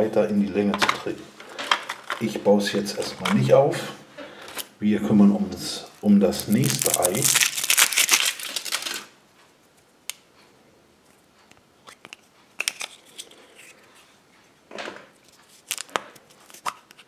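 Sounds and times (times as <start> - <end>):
foil wrapper crinkling: 6.2 - 9.1, 15.6 - 17.0
chocolate shell cracking: 6.4 - 9.1, 15.6 - 16.8.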